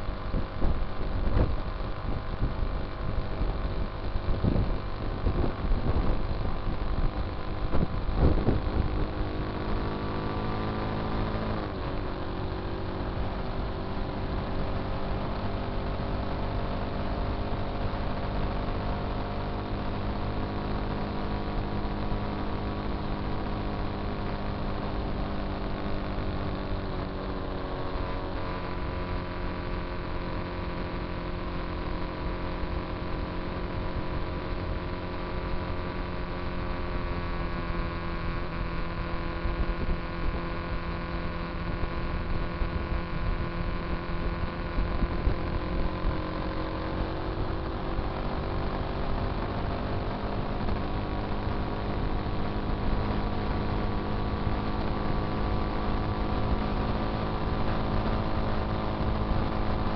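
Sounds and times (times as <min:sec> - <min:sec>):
motorcycle engine cruising: 0:00.0 - 0:59.9
wind noise: 0:00.1 - 0:09.6.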